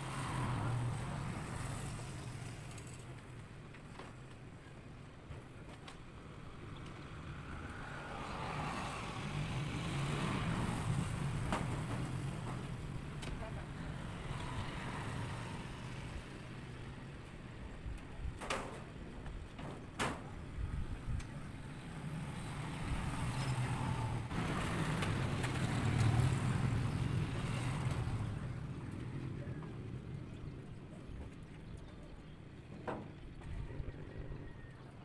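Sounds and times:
vehicle engine rumble passing: 0.0s - 3.0s, 6.9s - 17.1s, 21.5s - 30.5s.

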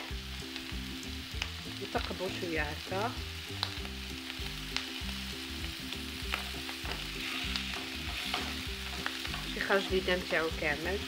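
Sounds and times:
sausages sizzling in a frying pan: 0.0s - 11.0s
fork tines clicking on a pan: 6.3s - 10.4s.

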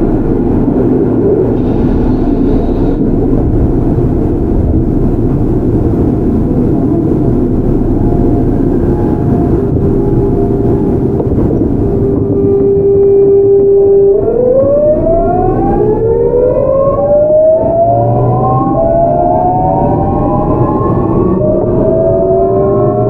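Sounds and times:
electric train inverter whining: 0.0s - 23.0s
train rumble: 0.0s - 23.0s.

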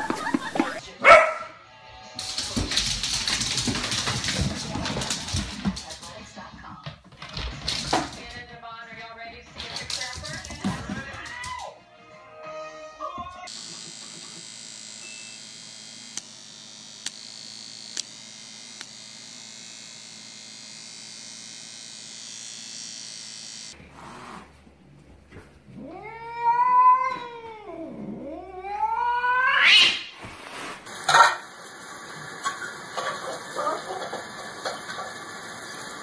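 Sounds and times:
cat meowing: 25.8s - 30.0s.

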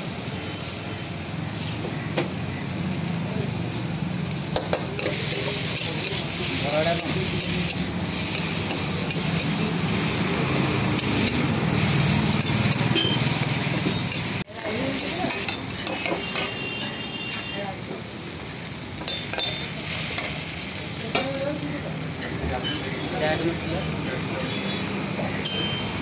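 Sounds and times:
food sizzling in wok: 0.0s - 26.0s
metal spatula scraping wok: 4.6s - 17.4s.

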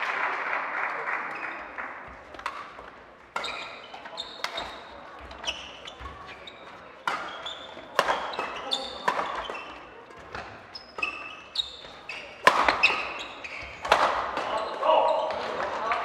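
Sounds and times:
rackets smacking shuttlecock: 2.4s - 14.6s
shoes squeaking on court: 2.4s - 15.6s.

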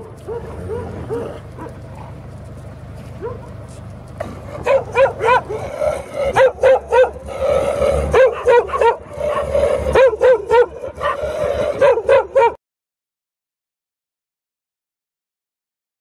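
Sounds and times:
dogs barking: 0.0s - 12.6s.

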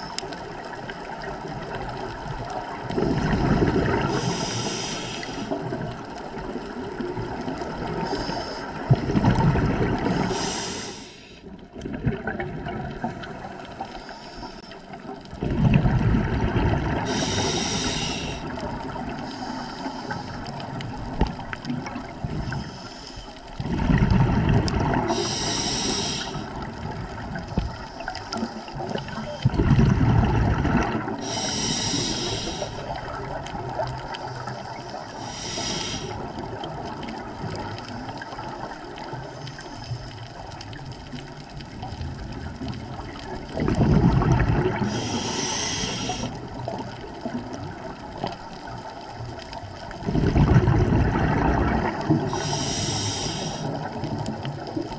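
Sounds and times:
exhaled bubbles underwater: 0.0s - 54.9s
regulator inhalation hiss: 4.0s - 5.6s, 8.0s - 8.8s, 10.1s - 11.5s, 13.8s - 14.9s, 17.0s - 18.5s, 19.2s - 20.6s, 22.4s - 23.4s, 25.1s - 26.6s, 31.2s - 33.0s, 34.2s - 36.2s, 44.8s - 46.4s, 52.3s - 53.9s.

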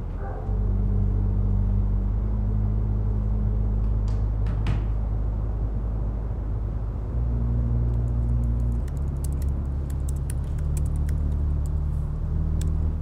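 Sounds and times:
low steady drone: 0.0s - 13.0s
laptop keyboard typing: 8.0s - 11.8s.

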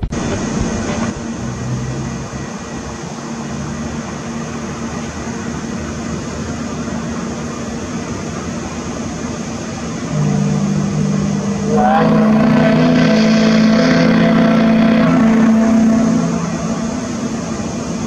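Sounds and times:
deep steam whistle blast: 9.4s - 18.0s.

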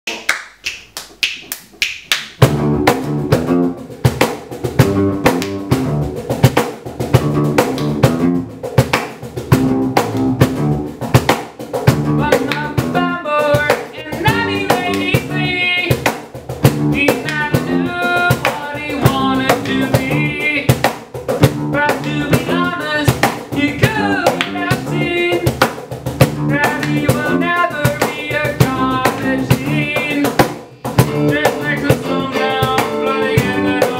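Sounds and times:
drum kit beat: 0.1s - 33.9s
electric guitar chords: 2.4s - 4.1s, 4.7s - 6.3s, 7.1s - 8.6s, 11.9s - 15.9s, 16.6s - 20.6s, 21.4s - 23.0s, 23.6s - 25.5s, 26.2s - 30.2s, 31.0s - 33.9s.

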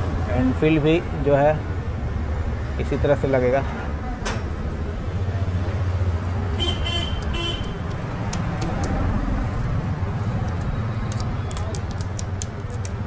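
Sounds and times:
road traffic rumble: 0.0s - 13.0s
vehicle horn beeps: 6.6s - 7.8s.

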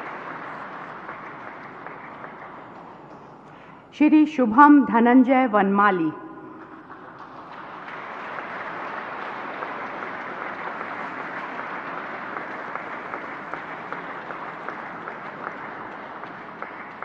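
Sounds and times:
audience applauding: 0.0s - 3.8s, 6.5s - 17.0s.

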